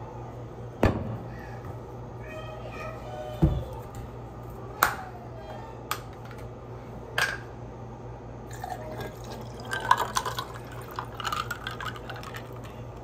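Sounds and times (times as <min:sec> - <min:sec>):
juice pouring into glass: 0:08.5 - 0:13.0.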